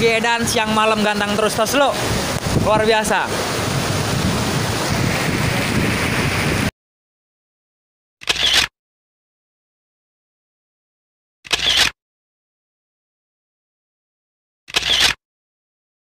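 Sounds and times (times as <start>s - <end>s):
rain: 0.0s - 6.7s
wind buffeting microphone: 0.0s - 6.7s.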